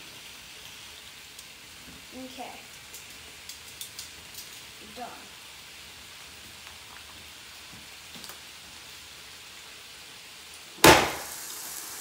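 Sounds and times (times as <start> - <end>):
bacon sizzling: 0.0 - 12.0
grill lid slamming shut: 10.8 - 11.3.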